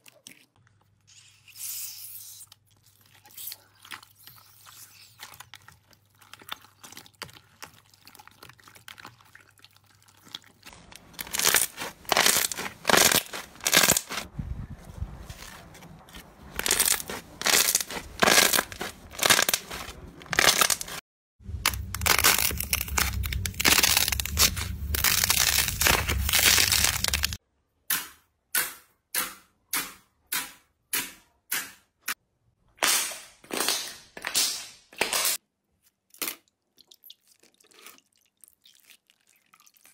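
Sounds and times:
hands squeezing crackling slime: 1.2 - 14.3, 16.6 - 21.0, 21.6 - 27.4.

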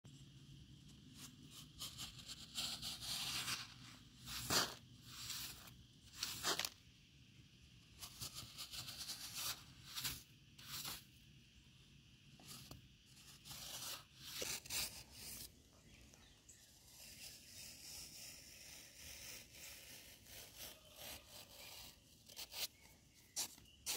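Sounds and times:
metal spatula scraping sand: 1.2 - 6.8, 8.0 - 11.1.

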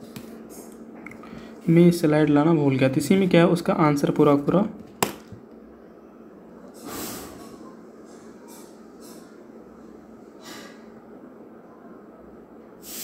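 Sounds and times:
person breathing: 1.2 - 1.6, 10.4 - 11.0.

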